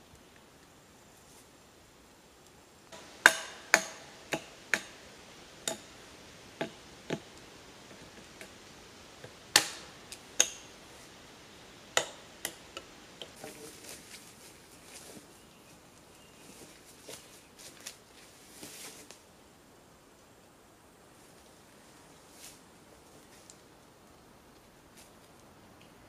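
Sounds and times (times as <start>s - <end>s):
hand tool knocking on wooden post: 3.0s - 4.9s.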